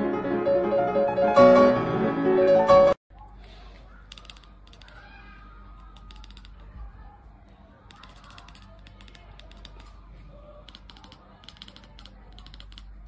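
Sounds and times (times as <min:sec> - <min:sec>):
kitten chattering: 0:10.7 - 0:13.0.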